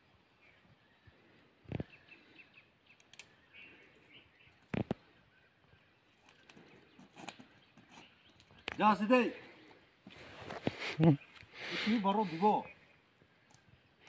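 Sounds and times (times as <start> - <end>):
faint bird chirps: 0.0 - 14.0
sharp clicks: 2.9 - 3.4.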